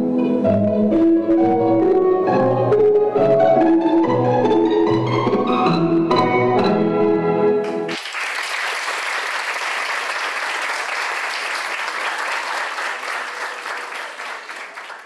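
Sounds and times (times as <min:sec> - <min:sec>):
music: 0:00.0 - 0:07.9
audience applauding: 0:07.6 - 0:15.0.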